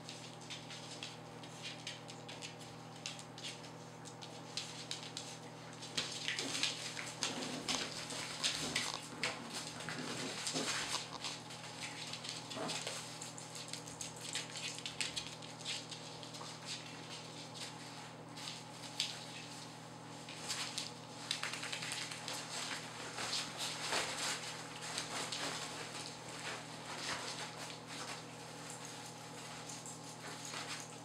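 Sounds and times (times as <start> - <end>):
claws scrabbling on wooden floor: 0.1 - 17.8.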